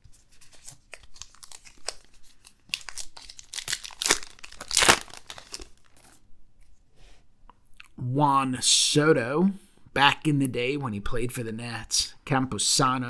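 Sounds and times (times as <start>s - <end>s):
wrapper tearing and crinkling: 0.4s - 6.2s.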